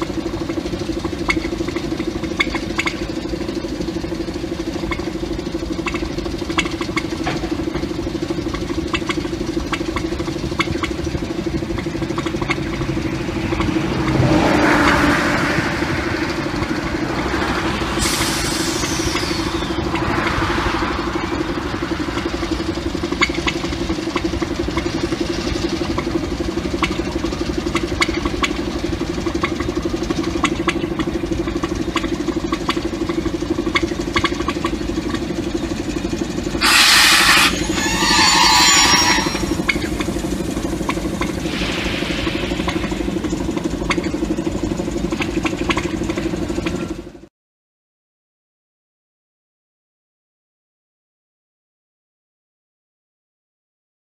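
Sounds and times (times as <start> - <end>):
diesel locomotive engine running: 0.0 - 47.3
loud rush of noise: 12.6 - 25.2, 36.6 - 44.7
falling hiss: 17.6 - 19.9, 36.6 - 40.6, 41.3 - 43.5.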